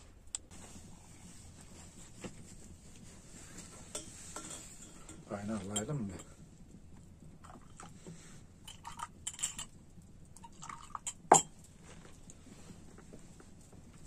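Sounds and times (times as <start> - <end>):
tea glasses and spoons clinking: 3.9 - 6.3, 8.7 - 9.7, 10.4 - 11.6
tea pouring: 7.4 - 8.0, 10.3 - 11.5.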